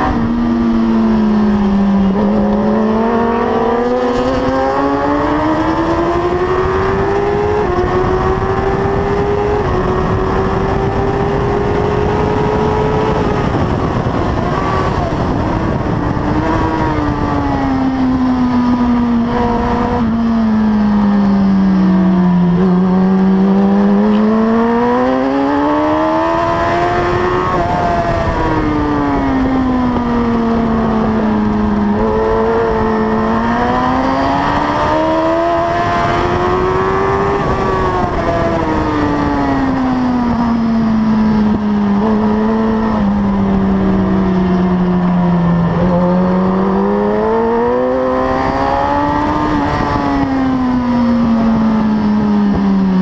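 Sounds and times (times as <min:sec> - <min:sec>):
motorcycle engine at racing speed: 0:00.0 - 0:53.0.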